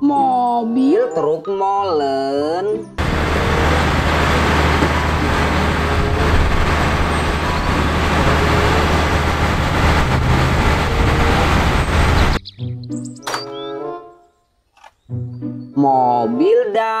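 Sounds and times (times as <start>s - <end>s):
diesel truck engine drone: 3.0s - 12.4s.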